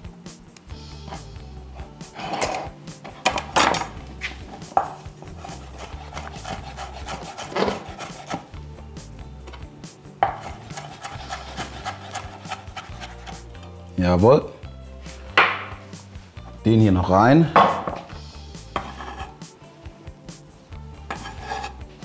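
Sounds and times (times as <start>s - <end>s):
knife chopping on wooden board: 4.6s - 8.5s, 10.2s - 13.4s, 15.3s - 15.7s, 18.8s - 19.3s.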